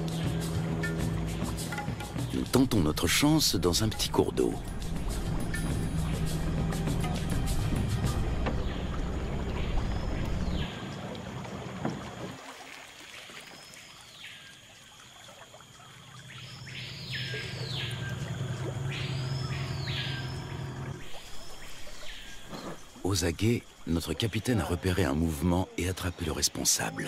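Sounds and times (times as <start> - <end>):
outboard motor running: 0.0 - 12.4, 16.2 - 23.0.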